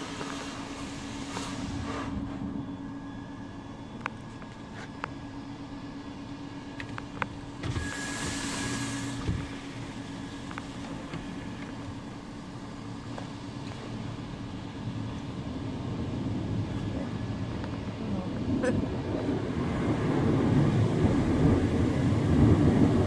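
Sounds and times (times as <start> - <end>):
water spraying: 0.0 - 2.2, 7.6 - 11.9
car wash machinery hum: 0.0 - 23.0.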